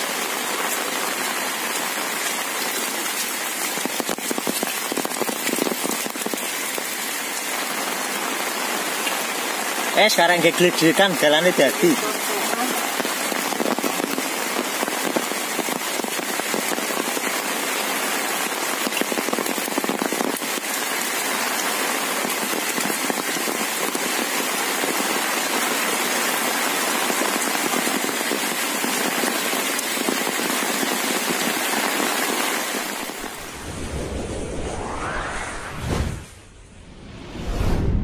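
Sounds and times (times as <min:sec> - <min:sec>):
heavy rain falling: 0:00.0 - 0:34.2
whoosh sound effect: 0:33.2 - 0:38.0.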